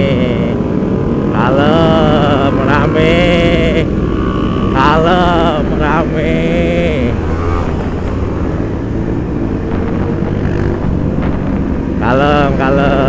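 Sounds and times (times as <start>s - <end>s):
motorcycle engine running: 0.0s - 13.0s
other motorcycles: 0.0s - 13.0s.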